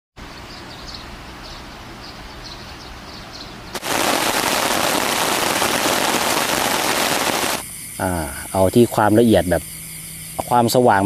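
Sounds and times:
heavy rain crackling: 3.8s - 7.6s.

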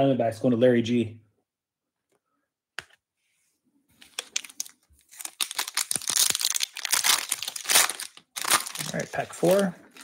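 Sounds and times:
card pack wrapper tearing: 4.0s - 10.0s.

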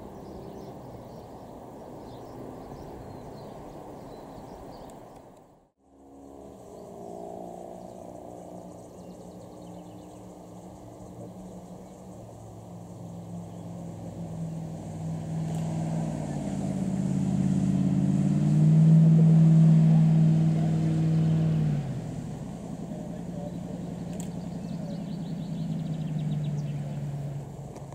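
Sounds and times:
jet boat engine droning: 5.9s - 27.9s.

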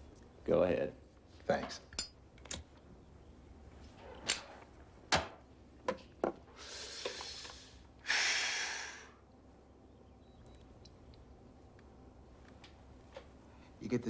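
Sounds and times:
person smoking a cigarette: 6.5s - 9.2s
person blowing out smoke: 6.6s - 9.2s.

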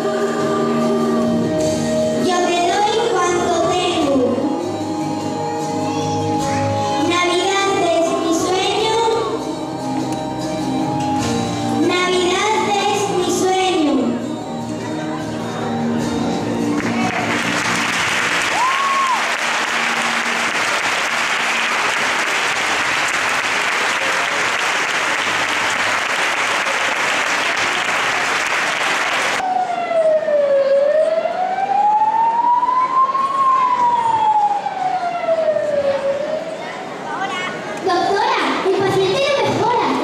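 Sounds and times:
audience applauding: 16.7s - 29.4s
siren wail: 18.4s - 19.4s, 29.4s - 37.0s.

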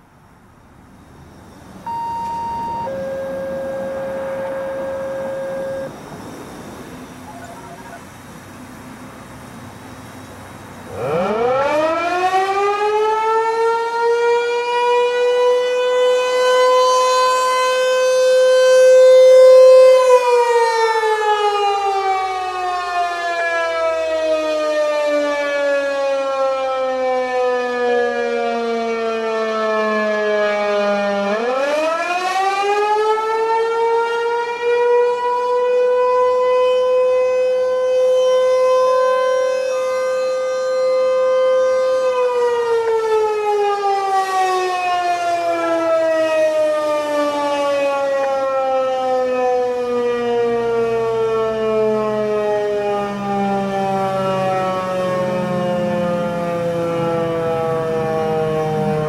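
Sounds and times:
tornado siren wailing: 1.0s - 59.0s.

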